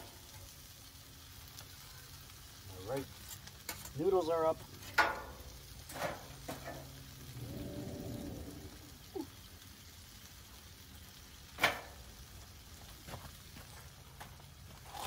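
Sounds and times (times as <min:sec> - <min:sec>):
chicken sizzling on griddle: 0:00.0 - 0:15.0.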